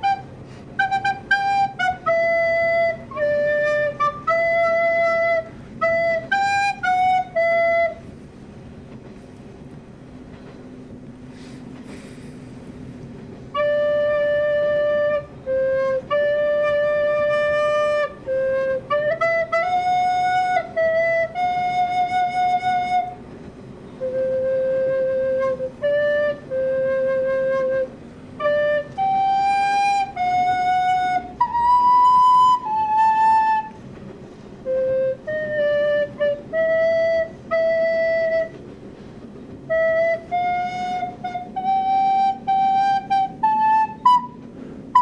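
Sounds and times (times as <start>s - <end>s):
recorder melody: 0.0s - 8.1s, 24.1s - 33.8s, 39.7s - 45.0s.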